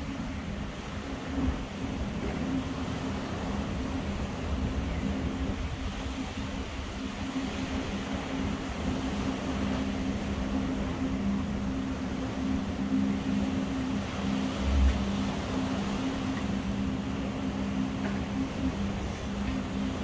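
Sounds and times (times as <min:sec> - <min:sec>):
low two-tone mechanical hum: 0:00.0 - 0:20.0
noise wash: 0:00.0 - 0:20.0.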